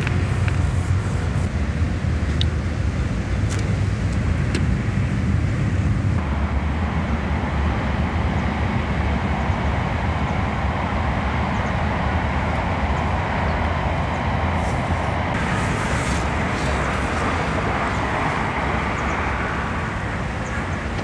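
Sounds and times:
outdoor background rumble: 0.0s - 21.0s
hiss: 14.6s - 19.2s.

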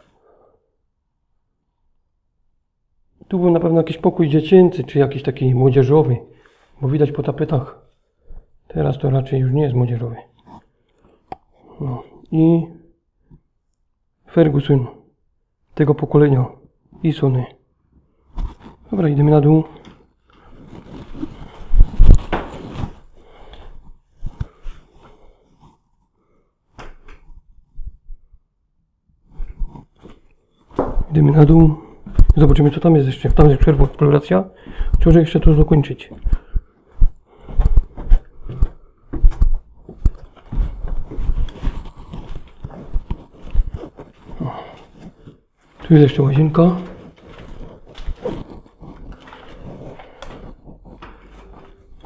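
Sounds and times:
footsteps down stairs: 20.9s - 23.6s, 30.7s - 34.0s, 34.6s - 52.0s.

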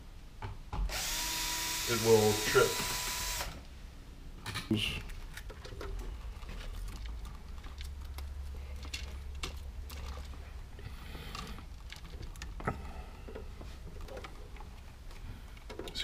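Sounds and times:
electrical wires clicking and rattling: 4.4s - 16.0s.

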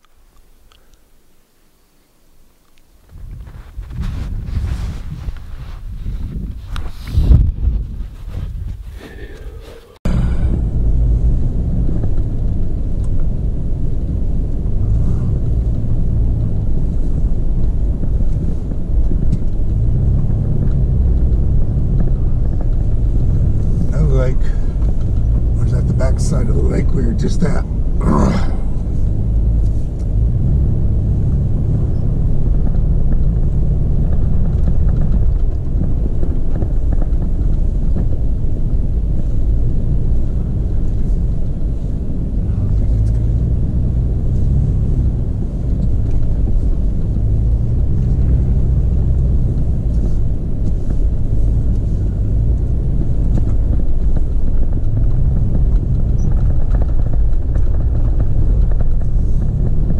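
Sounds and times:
tyres rumbling over snow: 2.9s - 59.9s
car engine: 3.0s - 59.9s.

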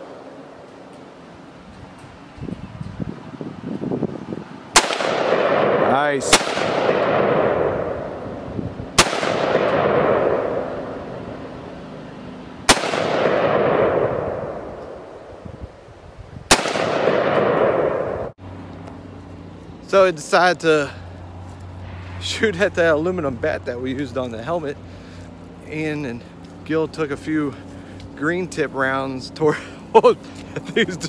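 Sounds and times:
rifle shots echoing: 4.7s - 11.2s, 12.7s - 15.1s, 16.5s - 18.3s.

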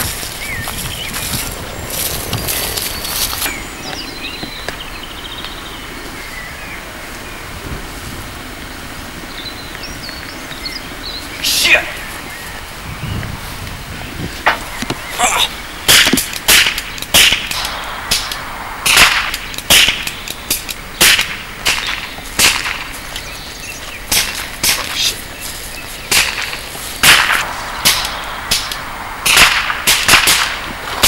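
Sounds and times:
gunshot cracks: 15.9s - 20.2s, 21.0s - 22.9s, 26.1s - 31.0s.

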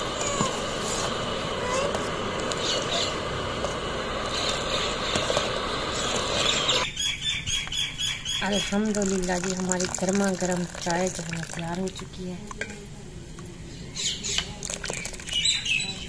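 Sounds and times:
tea boiling hiss: 0.0s - 6.9s, 8.4s - 12.4s, 14.4s - 15.7s
ladle pouring liquid: 8.6s - 12.1s, 14.6s - 15.4s.

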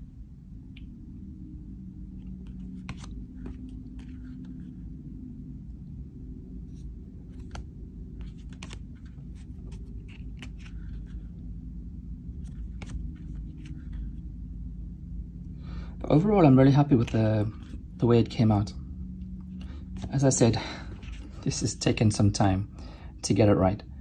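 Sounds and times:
low steady hum: 0.0s - 24.0s
cards clicking and snapping: 2.4s - 4.5s, 7.4s - 11.2s, 12.4s - 14.0s.

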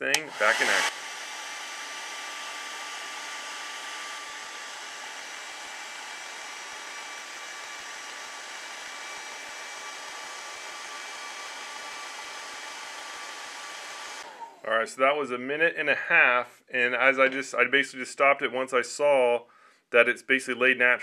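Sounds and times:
hair dryer running: 0.0s - 14.6s.

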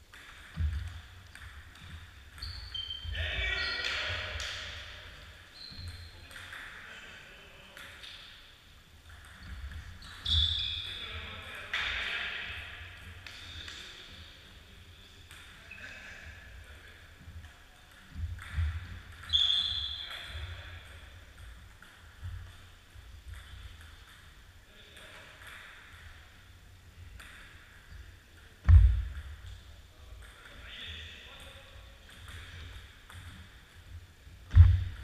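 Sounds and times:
short high squeaks: 2.4s - 4.3s, 5.5s - 6.1s, 10.0s - 11.0s, 19.2s - 20.3s.

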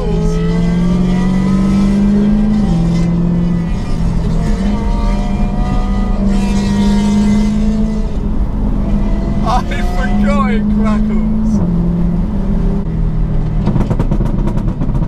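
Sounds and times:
road and wind noise: 0.0s - 15.0s
sports car exhaust cruising: 0.0s - 15.0s.

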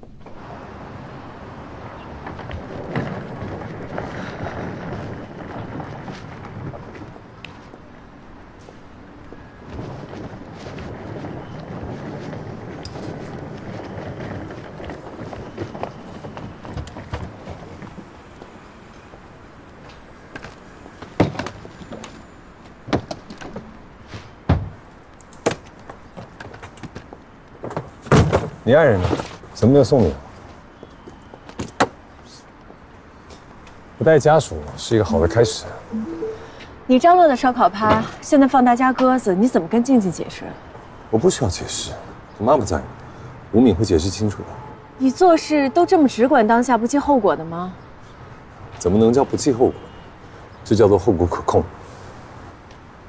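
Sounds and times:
low rumbling outdoor ambience: 32.0s - 38.5s
low steady background: 33.1s - 40.6s.

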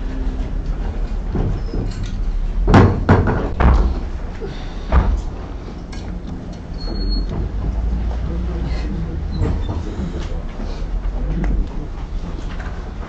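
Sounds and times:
low room rumble: 0.0s - 13.0s
sharp knocks and thuds: 2.6s - 5.6s, 6.3s - 8.4s.

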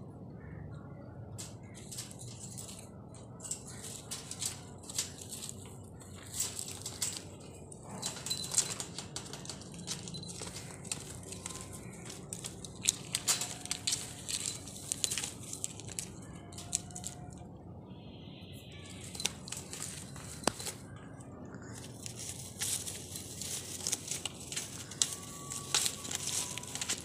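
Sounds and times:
bird moving in wire cage: 1.3s - 17.5s, 18.7s - 21.2s, 21.8s - 27.0s
rustling of dry grass: 1.4s - 17.4s, 18.8s - 21.0s, 21.7s - 27.0s.

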